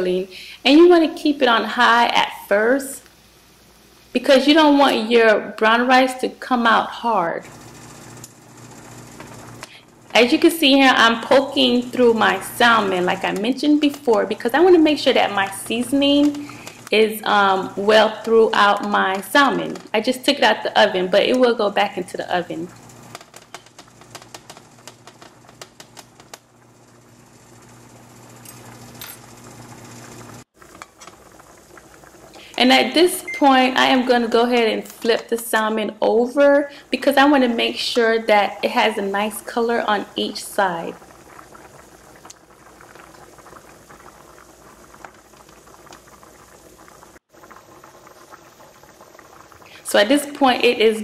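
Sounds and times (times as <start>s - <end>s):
hot liquid bubbling: 6.5s - 35.6s, 36.7s - 51.0s.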